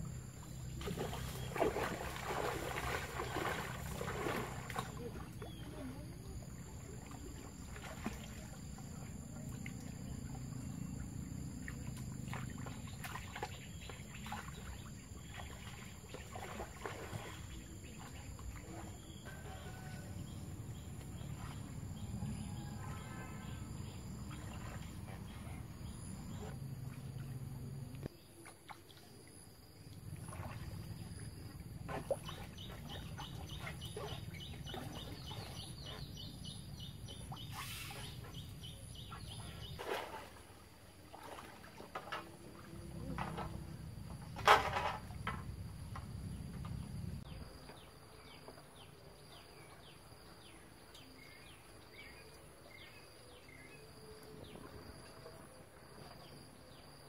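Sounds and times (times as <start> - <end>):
floodwater sloshing and splashing: 0.0 - 57.0.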